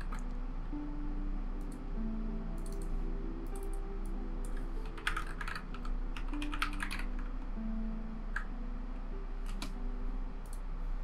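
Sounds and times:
soft background music: 0.0s - 11.0s
typing on computer keyboard: 4.4s - 7.2s.

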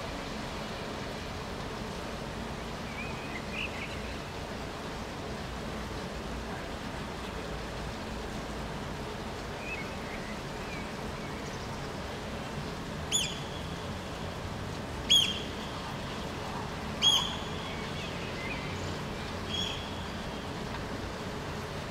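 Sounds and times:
rain hiss: 0.0s - 21.9s
shrill piping bird calls: 13.1s - 13.6s, 15.1s - 15.6s, 17.0s - 18.6s, 19.5s - 20.1s.

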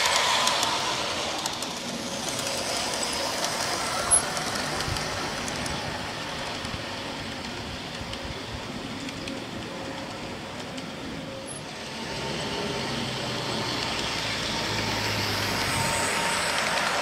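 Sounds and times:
model train wheels rumbling on track: 0.0s - 17.0s.

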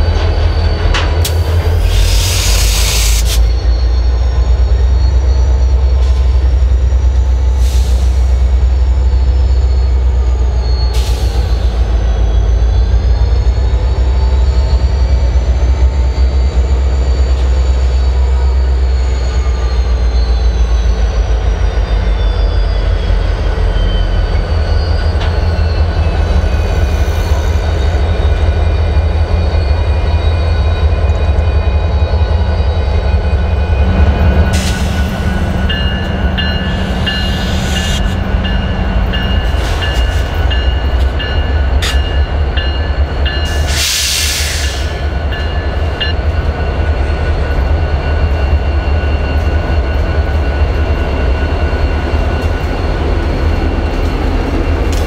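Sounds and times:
diesel locomotive engine drone: 0.0s - 55.0s
wheels squealing on rail: 0.0s - 55.0s.

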